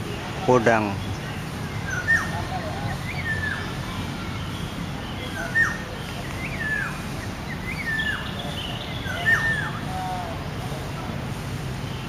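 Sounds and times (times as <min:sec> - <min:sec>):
orioles whistling: 0:00.0 - 0:11.1.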